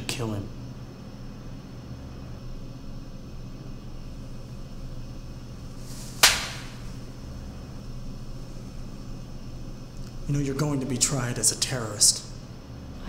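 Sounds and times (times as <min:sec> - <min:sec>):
low room hum: 0:00.0 - 0:13.0
hand slapping a face: 0:06.1 - 0:06.8.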